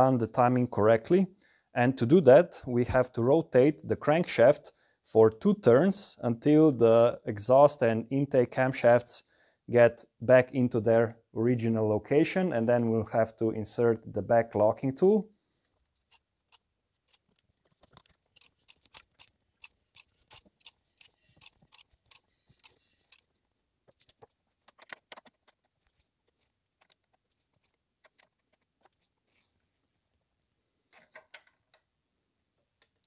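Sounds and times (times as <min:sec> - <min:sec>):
sharp metallic clicks: 0:18.4 - 0:23.3.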